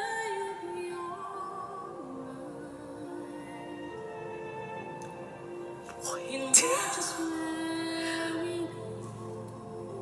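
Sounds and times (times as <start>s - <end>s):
slow ballad music: 0.0s - 10.0s
loud vocal sound: 6.0s - 8.8s.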